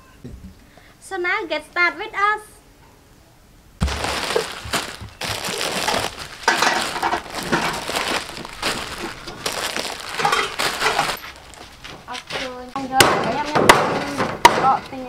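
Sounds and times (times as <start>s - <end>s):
plastic packets crinkling: 3.8s - 12.6s.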